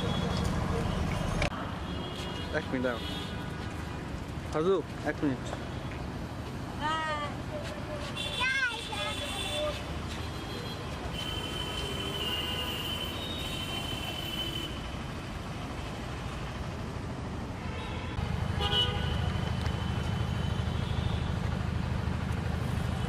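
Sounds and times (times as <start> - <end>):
street traffic noise: 0.0 - 23.0
vehicle horn toot: 8.2 - 14.9, 17.7 - 19.2.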